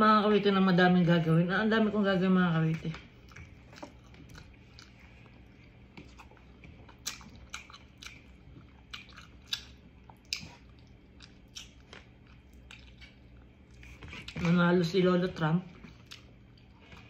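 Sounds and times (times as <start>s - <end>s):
person chewing crunchy food: 3.1s - 14.5s, 15.7s - 17.0s.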